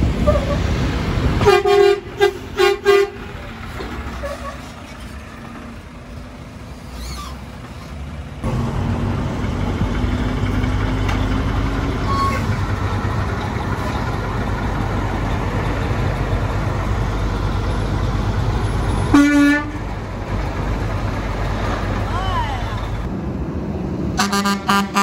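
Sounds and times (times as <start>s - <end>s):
diesel truck engine running: 0.0s - 25.0s
truck horn honking: 1.4s - 3.4s, 12.0s - 12.6s, 19.1s - 19.9s, 24.2s - 25.0s.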